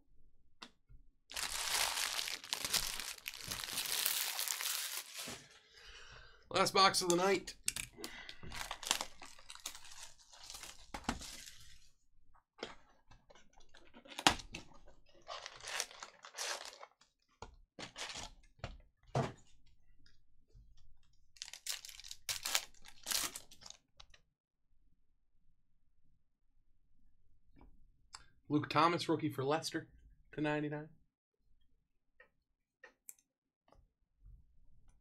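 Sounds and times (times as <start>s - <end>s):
plastic wrapping crinkling and tearing: 1.3s - 5.5s, 8.5s - 11.8s, 15.2s - 17.0s, 21.4s - 23.8s.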